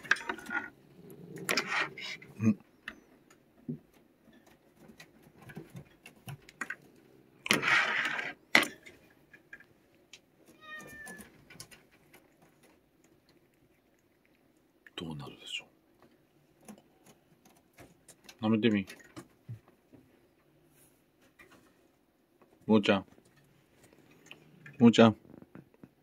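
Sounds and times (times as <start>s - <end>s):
cat hissing: 1.0s - 2.4s.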